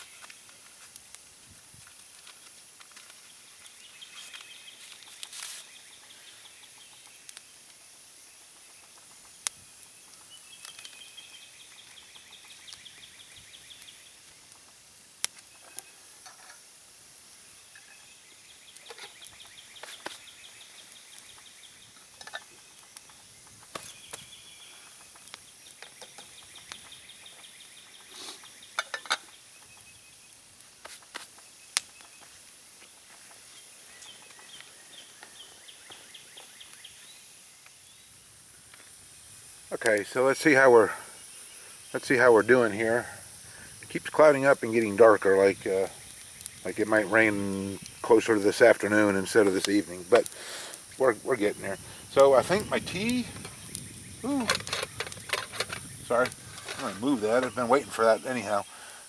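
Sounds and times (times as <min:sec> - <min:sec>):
campfire clicks and pops: 0:00.0 - 0:59.0
metal cup being handled: 0:16.2 - 0:16.6, 0:22.2 - 0:22.5, 0:28.8 - 0:29.3, 0:54.4 - 0:55.8.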